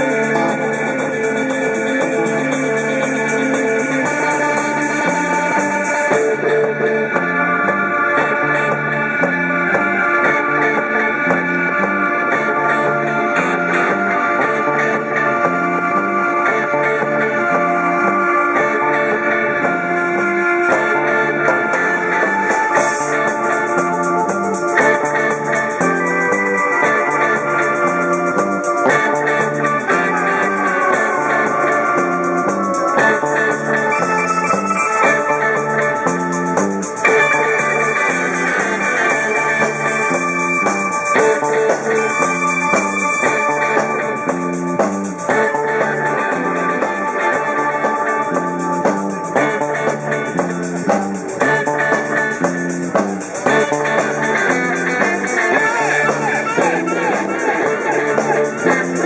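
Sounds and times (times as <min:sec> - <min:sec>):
fast cymbal beat: 0:00.0 - 0:06.4, 0:22.6 - 0:59.0
drum kit: 0:00.0 - 0:16.0, 0:20.7 - 0:59.0
electric bass: 0:00.0 - 0:59.0
electric guitars: 0:00.0 - 0:59.0
live rock band playing: 0:00.0 - 0:59.0.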